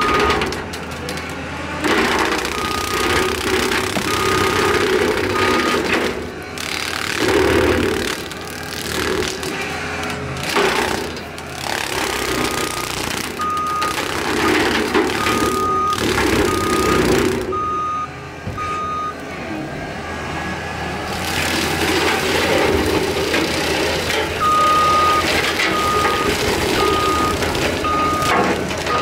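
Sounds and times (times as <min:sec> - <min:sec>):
track loader running hard: 0:00.0 - 0:29.0
backup alarm beeping: 0:04.0 - 0:05.8, 0:12.4 - 0:19.2, 0:24.4 - 0:29.0
brush cutter chewing wood: 0:06.5 - 0:14.4.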